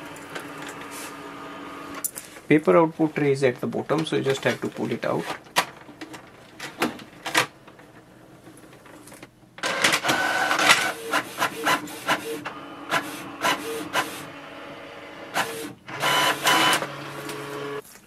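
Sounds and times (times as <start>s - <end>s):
printer feeding and printing: 0.0s - 2.0s, 9.6s - 17.8s.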